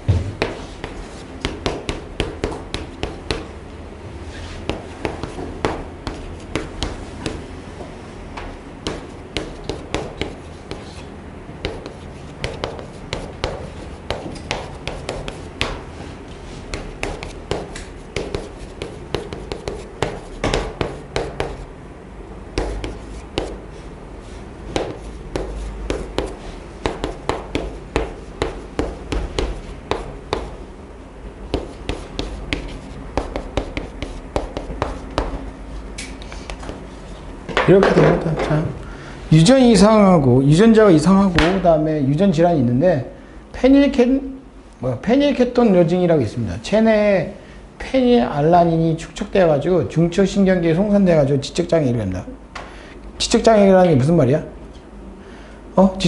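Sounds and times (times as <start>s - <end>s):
chalk tapping and scraping: 0.1s - 3.6s, 4.3s - 7.5s, 8.4s - 21.7s, 22.5s - 23.6s, 24.2s - 30.7s, 31.5s - 38.0s.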